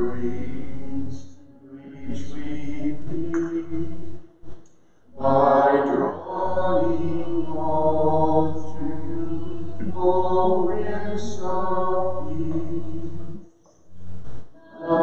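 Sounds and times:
slow chant-style singing: 0.0 - 15.0.

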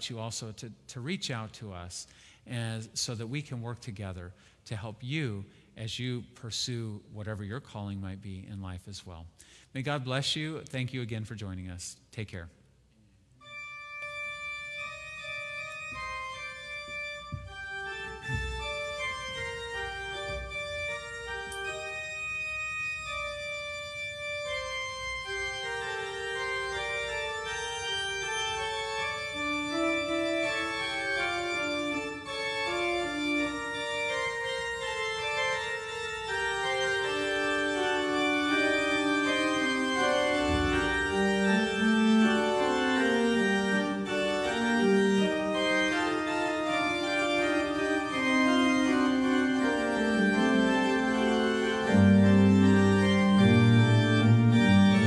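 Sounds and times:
organ playing slow melody: 13.4 - 55.0.

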